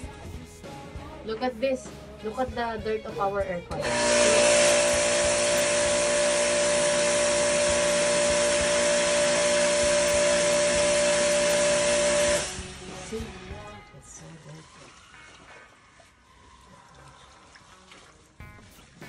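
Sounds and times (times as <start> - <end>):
pressure washer motor whine: 3.8 - 13.2
water spray hissing: 3.9 - 12.7.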